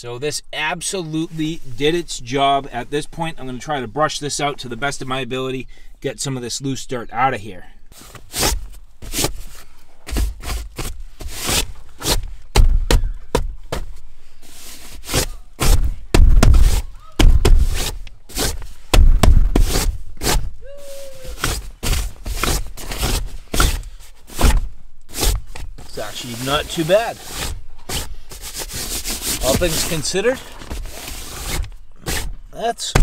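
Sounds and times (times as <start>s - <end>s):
hand brushing seat cover: 8.0s - 12.3s, 13.7s - 32.4s
dull thumps: 8.2s - 14.1s, 15.0s - 33.0s.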